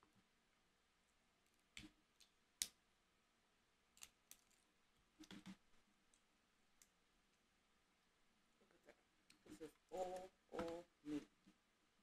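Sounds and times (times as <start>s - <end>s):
shellfish shell cracking: 4.0s - 4.6s.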